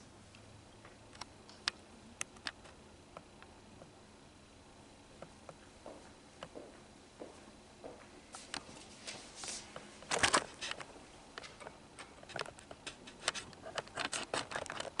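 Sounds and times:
rustling papers and clicks: 0:08.3 - 0:15.0.

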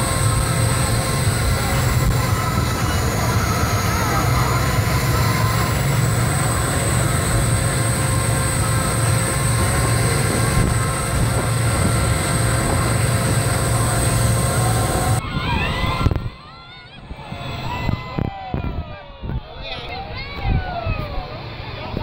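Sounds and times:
thin high whine: 0:00.0 - 0:16.2
speedboat engines droning: 0:00.0 - 0:22.0
wind buffeting microphone: 0:00.0 - 0:22.0.

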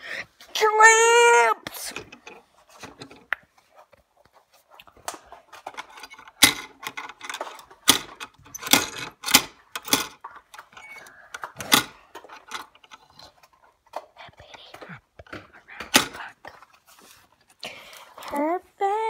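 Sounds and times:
metal hardware clinking on wood: 0:01.9 - 0:03.3, 0:05.5 - 0:13.2.

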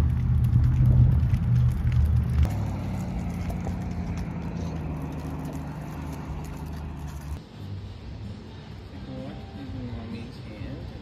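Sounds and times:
vehicle passing on road: 0:00.0 - 0:08.3.

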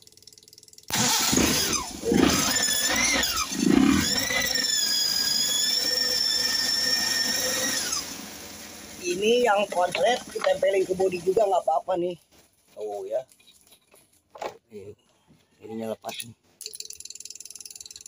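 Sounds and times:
engine cranking and starting: 0:00.0 - 0:08.8.

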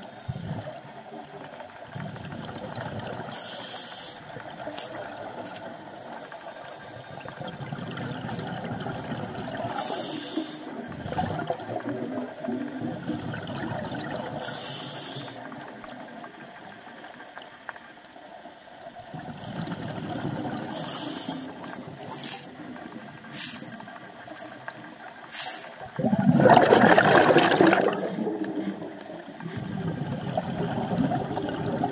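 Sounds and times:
exhaled air bubbling: 0:00.0 - 0:17.4, 0:18.6 - 0:31.9
regulator inhalation hiss: 0:03.3 - 0:04.3, 0:05.9 - 0:07.4, 0:09.8 - 0:10.8, 0:14.4 - 0:15.5, 0:20.7 - 0:22.4, 0:23.1 - 0:25.9.

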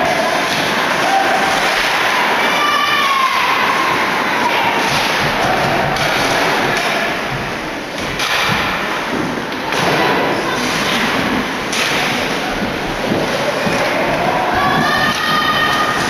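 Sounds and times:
crowd cheering and shouting: 0:00.0 - 0:07.6, 0:12.1 - 0:16.0.

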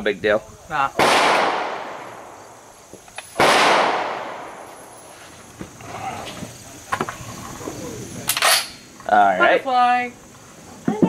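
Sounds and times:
rifle shot with echo: 0:01.0 - 0:02.6, 0:03.4 - 0:04.7.

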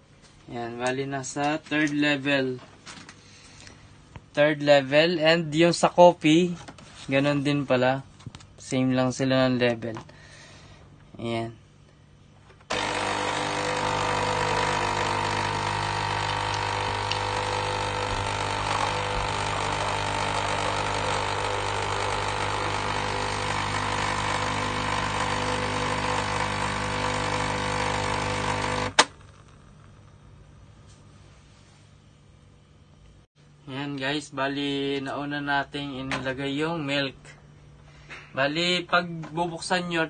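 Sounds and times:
coffee machine pump running: 0:12.7 - 0:29.9
milk streaming into glass: 0:13.6 - 0:28.8.

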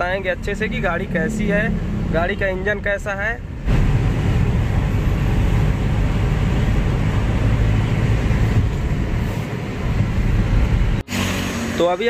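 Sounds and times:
car cabin road and engine noise: 0:00.0 - 0:12.0.

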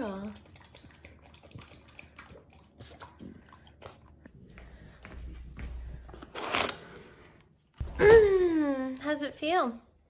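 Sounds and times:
dog lapping water: 0:00.0 - 0:04.5.

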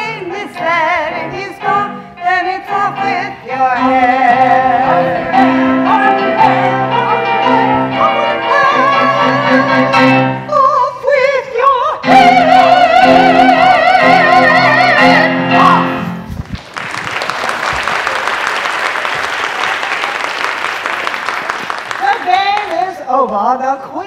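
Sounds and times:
instrumental accompaniment: 0:00.0 - 0:10.9, 0:12.0 - 0:16.4
audience applauding: 0:16.4 - 0:22.9.

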